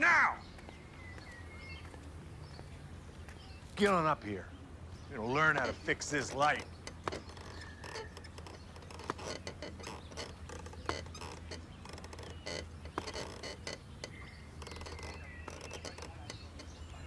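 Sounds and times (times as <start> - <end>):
boots on metal stepladder: 5.2 - 17.0
ladder knocks and creaks: 5.2 - 17.0.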